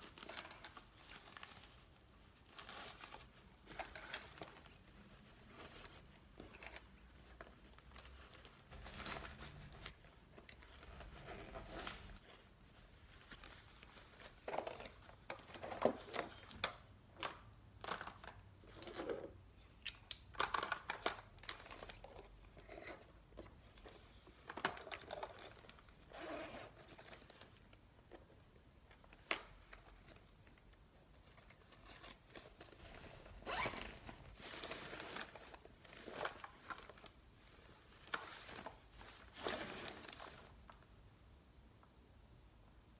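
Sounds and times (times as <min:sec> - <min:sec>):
fabric bag rustling: 0:00.0 - 0:14.4, 0:32.2 - 0:40.6.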